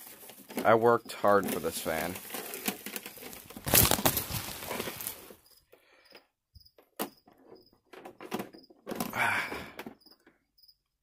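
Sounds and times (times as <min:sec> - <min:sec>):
handling clicks and knocks: 0:00.1 - 0:05.2
bubble wrap crinkling: 0:01.4 - 0:05.4.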